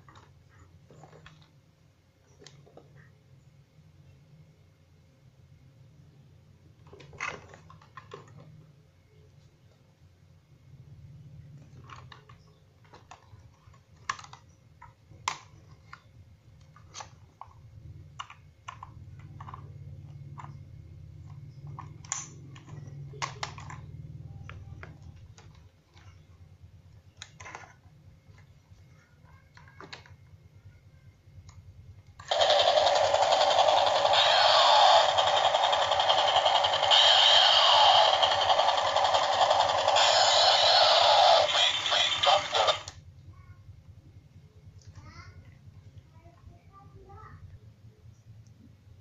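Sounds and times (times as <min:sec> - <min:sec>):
plastic toy clicks and knocks: 0:11.8 - 0:16.0, 0:32.2 - 0:43.0
toy electronic sound effects: 0:32.2 - 0:42.9.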